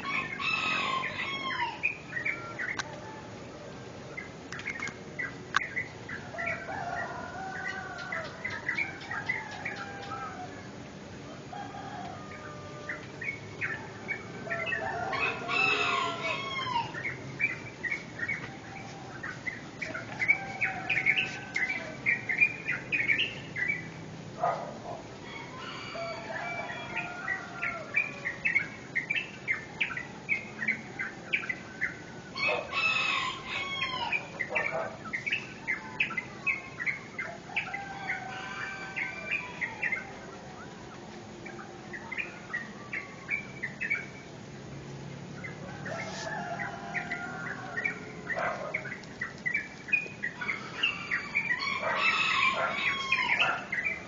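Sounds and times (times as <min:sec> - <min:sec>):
rooster crowing: 0:00.0 - 0:03.8, 0:06.3 - 0:17.1, 0:18.4 - 0:22.2, 0:25.2 - 0:28.6, 0:31.0 - 0:35.0, 0:35.6 - 0:40.4, 0:45.6 - 0:48.8, 0:50.3 - 0:54.0
small birds chirping: 0:00.0 - 0:54.0.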